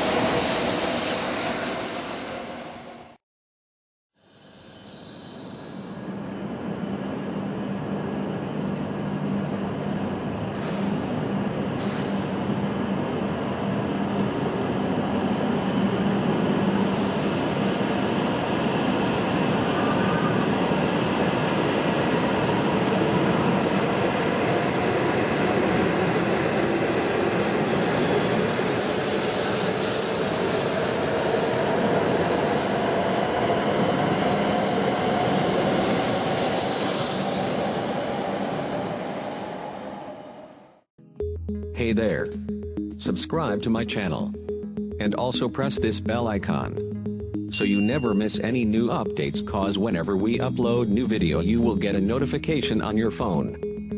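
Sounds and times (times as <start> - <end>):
train rolling past: 0.0 - 3.2, 4.9 - 40.8.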